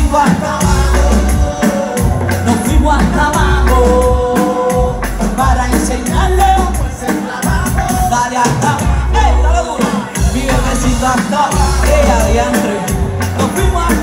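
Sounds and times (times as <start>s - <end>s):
heavy bass beat with percussion: 0.0s - 14.0s.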